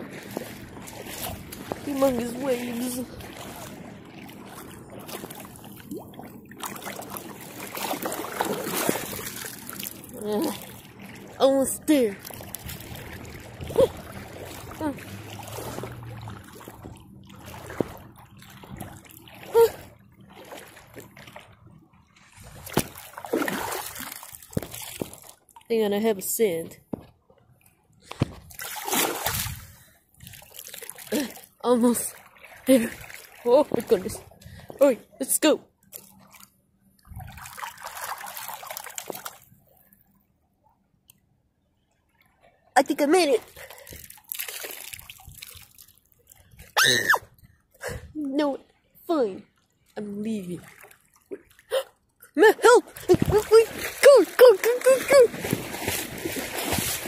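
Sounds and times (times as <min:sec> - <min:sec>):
muffled water sloshing and bubbling: 0:00.0 - 0:57.0.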